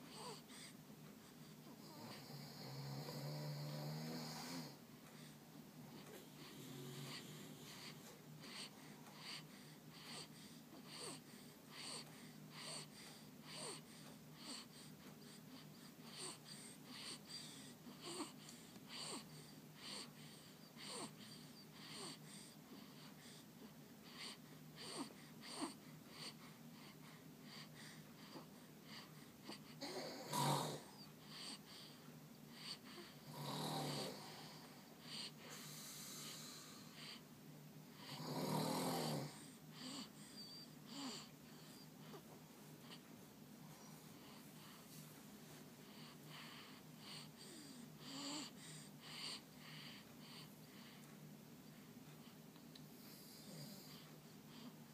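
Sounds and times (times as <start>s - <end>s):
baby breathing: 4.4s - 33.3s, 43.7s - 51.1s.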